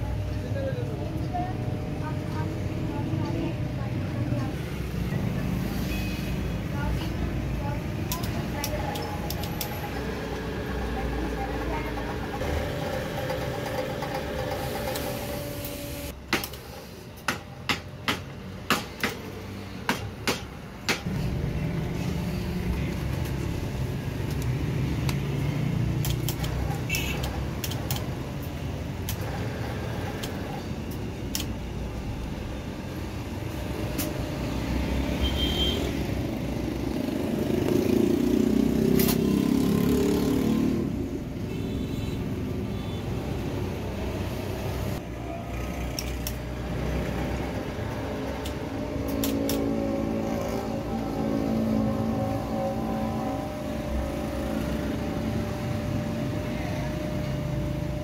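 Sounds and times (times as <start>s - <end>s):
electric motor winding wire: 8.0s - 17.0s, 23.2s - 32.4s, 45.5s - 58.0s.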